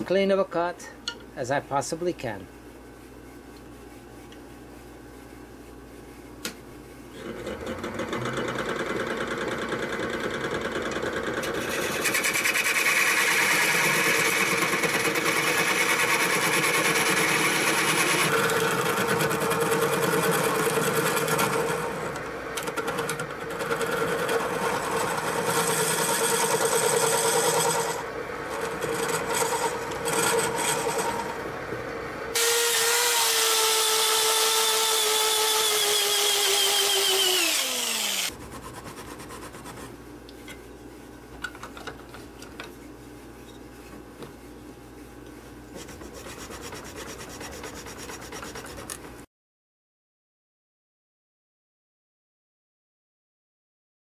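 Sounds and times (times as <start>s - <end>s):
turning tool cutting wood: 7.2s - 31.5s, 32.3s - 39.0s, 45.8s - 49.0s
wood lathe running: 7.2s - 31.5s, 32.3s - 38.3s.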